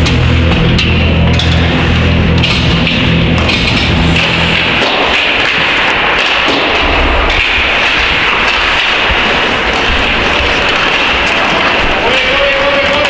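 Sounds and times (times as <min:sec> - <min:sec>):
skates scraping hiss: 0:03.8 - 0:06.8, 0:07.6 - 0:13.0.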